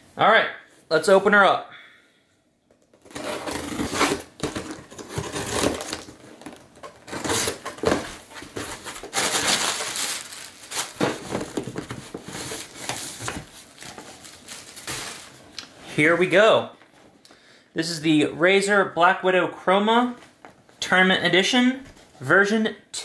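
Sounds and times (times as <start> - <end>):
packing tape tearing: 3.0 - 15.4
cardboard flaps rustling: 3.0 - 15.5.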